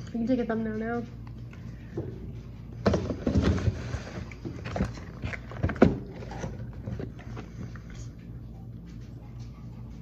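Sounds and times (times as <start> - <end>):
steady low hum: 0.0 - 10.0
cardboard and plastic handling knocks: 2.8 - 7.2.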